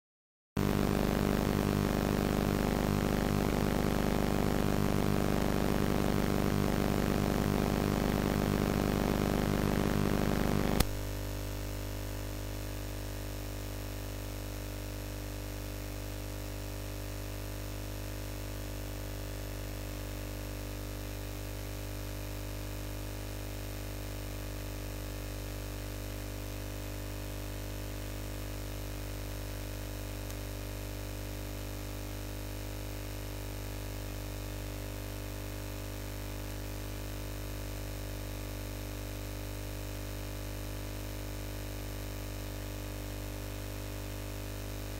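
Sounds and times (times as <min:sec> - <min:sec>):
buzzing tones: 0:00.6 - 0:11.0
electrical hum and static hiss: 0:00.6 - 0:44.9
click: 0:10.7 - 0:11.0, 0:30.3 - 0:30.5.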